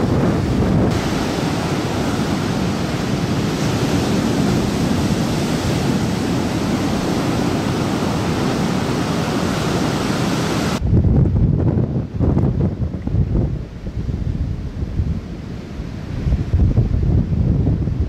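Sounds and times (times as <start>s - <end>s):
heavy surf breaking waves: 0.0s - 18.0s.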